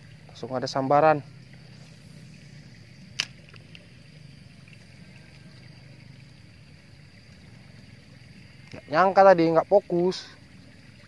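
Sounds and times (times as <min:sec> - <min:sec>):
thin high hum: 0:00.0 - 0:11.0
sharp click: 0:03.2 - 0:03.7.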